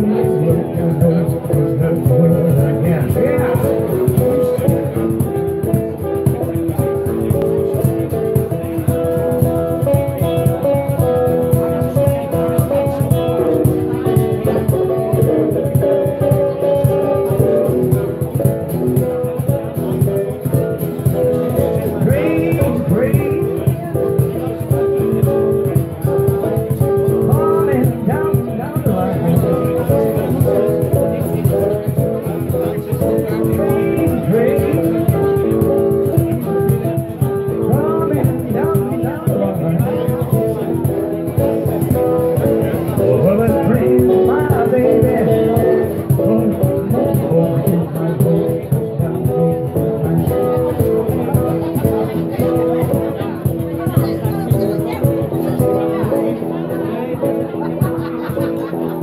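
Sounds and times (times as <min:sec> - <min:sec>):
man singing: 0:00.0 - 0:05.4, 0:21.2 - 0:24.6, 0:26.9 - 0:31.1, 0:32.5 - 0:40.9, 0:42.4 - 0:50.9
acoustic guitars playing rockabilly: 0:00.0 - 0:59.0
cajon beat: 0:00.0 - 0:59.0.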